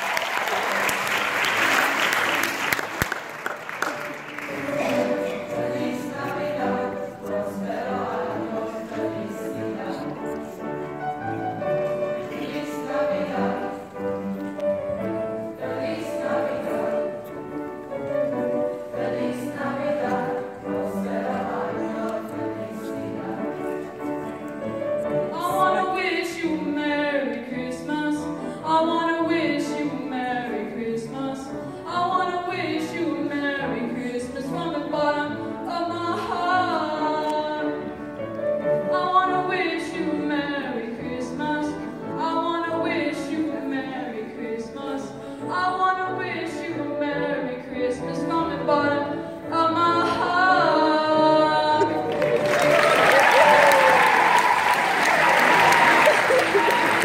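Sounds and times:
boys' choir singing: 4.0 - 14.3, 15.1 - 23.9.

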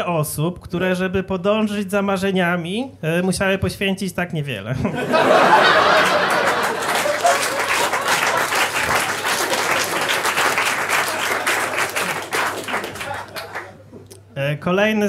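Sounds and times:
audience laughing: 4.9 - 13.8
audience applauding: 5.1 - 13.8.

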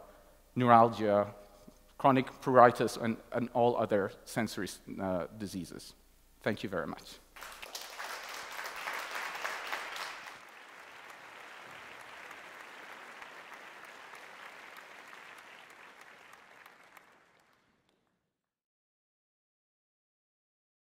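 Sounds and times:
audience applauding: 7.4 - 18.0.

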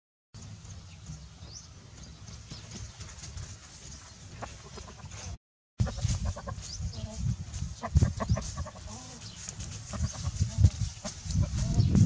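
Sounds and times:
rooster clucking: 4.4 - 7.2, 7.8 - 11.8.

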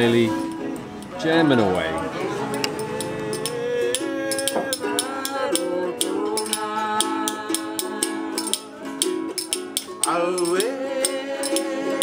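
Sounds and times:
strummed ukulele: 0.0 - 12.0
man singing: 1.4 - 12.0
shaker rattling: 4.3 - 11.7.

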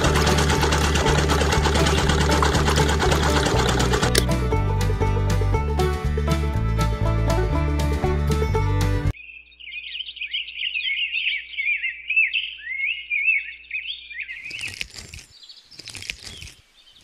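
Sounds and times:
songbird chirping: 9.1 - 17.0.

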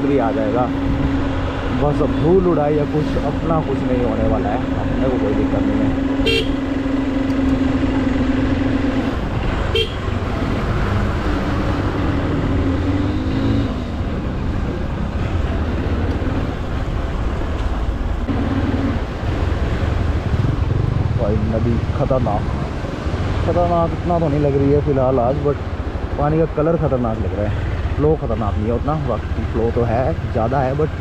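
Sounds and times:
motorcycle engine: 0.0 - 24.1.

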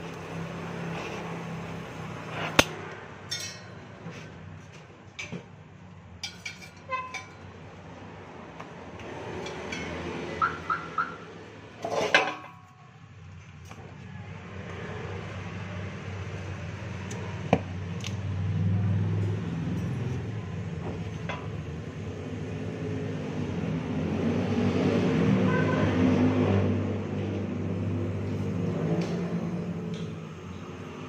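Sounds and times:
metal clinks and knocks: 3.3 - 3.9.

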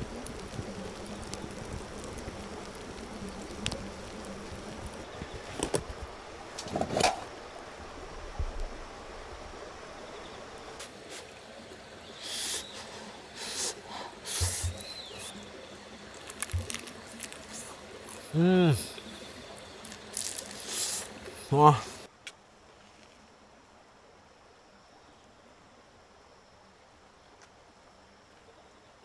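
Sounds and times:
embers crackling and popping: 0.0 - 7.8, 10.6 - 22.1
short hissing noises: 10.8 - 11.5, 12.1 - 22.1.

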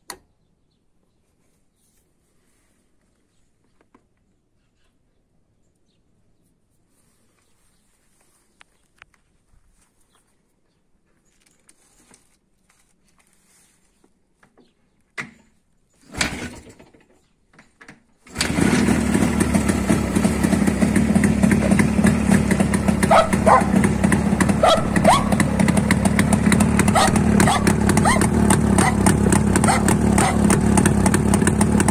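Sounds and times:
two-stroke motorcycle engine running: 18.3 - 31.9.

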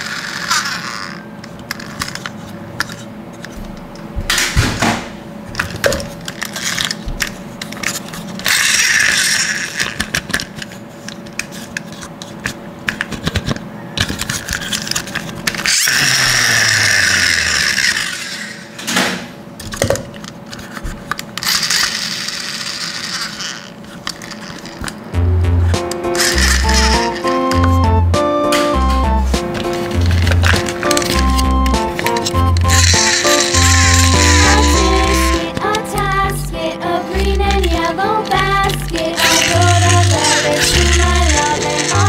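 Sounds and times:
toy wheels whirring: 0.0 - 3.6, 6.2 - 18.8, 20.5 - 25.0, 25.9 - 27.9, 29.6 - 36.0, 37.2 - 42.0
plastic toy clicks and knocks: 5.6 - 18.6, 25.9 - 27.7, 29.6 - 31.4, 32.0 - 35.8, 37.6 - 42.0.

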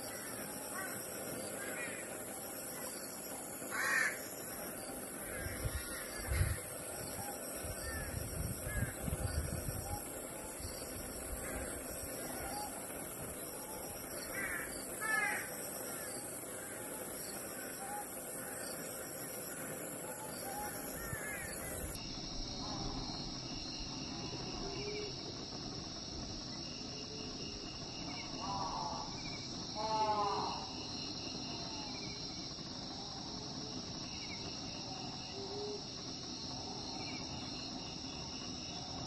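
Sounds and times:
crickets and insects chorus: 0.0 - 39.0.

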